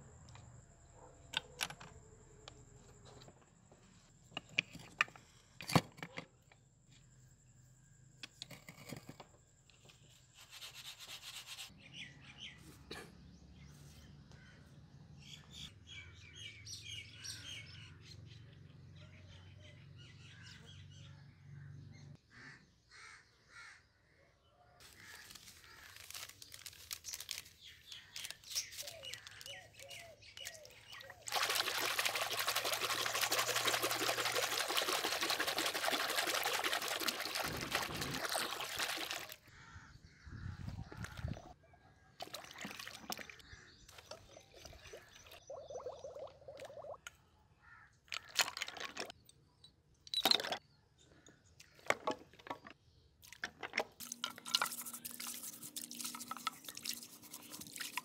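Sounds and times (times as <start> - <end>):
birds chirping: 24.8 - 41.8, 42.5 - 58.0
powder pouring into water: 24.9 - 39.4, 54.0 - 58.0.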